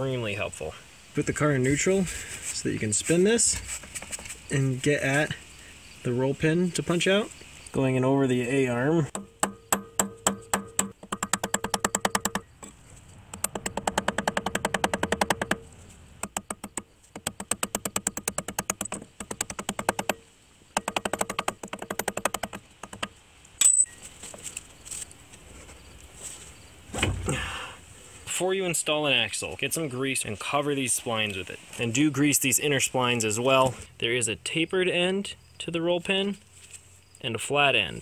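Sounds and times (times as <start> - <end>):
sledgehammer striking metal punch: 9.1 - 12.5.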